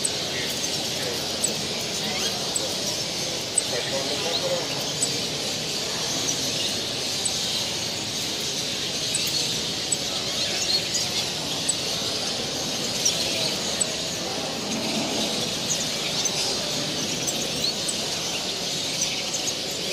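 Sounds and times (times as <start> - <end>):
caged birds chirping and singing: 0.0 - 19.9
low background noise: 0.0 - 19.9.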